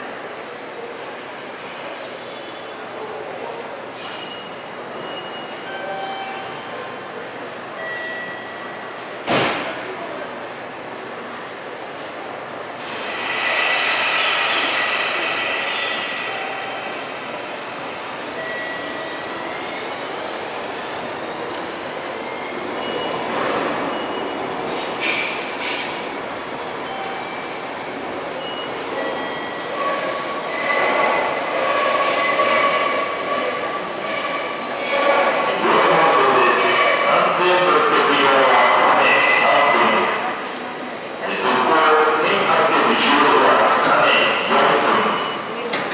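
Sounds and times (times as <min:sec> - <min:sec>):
train wheels squealing: 0:03.9 - 0:08.7, 0:13.0 - 0:17.6, 0:28.3 - 0:37.7
electric train pulling out: 0:12.8 - 0:25.0.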